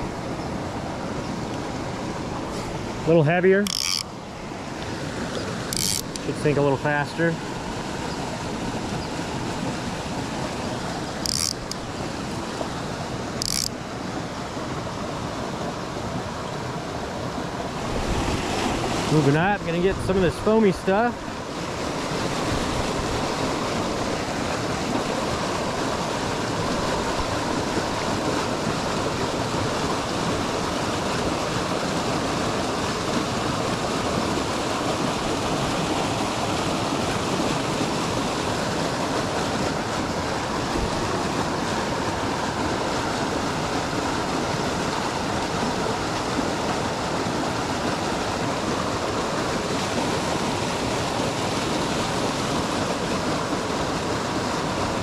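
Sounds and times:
creek rushing and splashing: 0.0 - 55.0.

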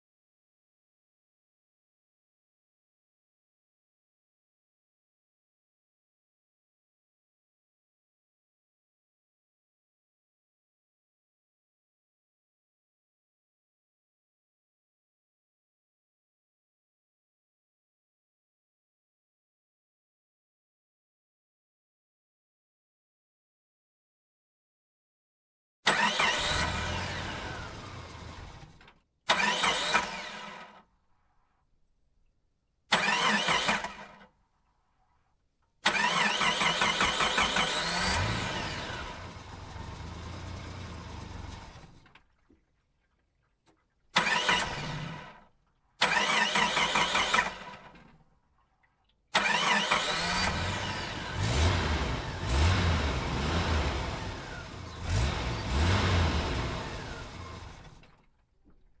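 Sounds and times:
engine starting and revving: 25.8 - 30.9, 32.9 - 34.3, 35.8 - 42.2, 44.2 - 48.1, 49.3 - 58.3.

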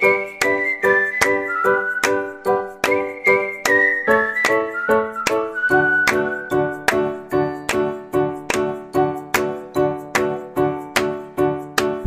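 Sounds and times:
background music of struck notes: 6.1 - 12.0.

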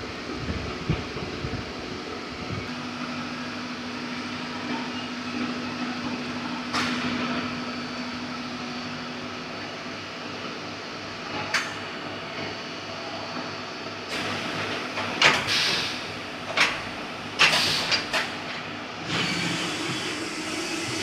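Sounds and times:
milling machinery humming: 18.7 - 21.0.

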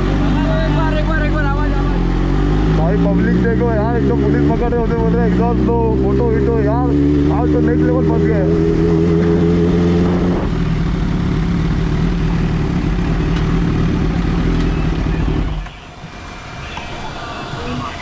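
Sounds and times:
motorcycle engine idling: 10.6 - 16.0.

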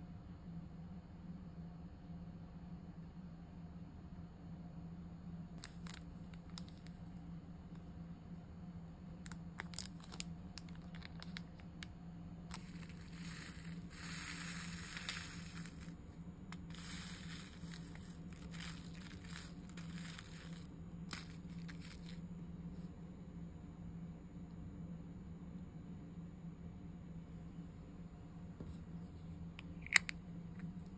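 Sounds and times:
beads rattling into plastic jar: 5.6 - 6.8, 9.3 - 11.5, 12.5 - 22.2
plastic bag crinkling: 12.6 - 15.9, 16.6 - 22.2.

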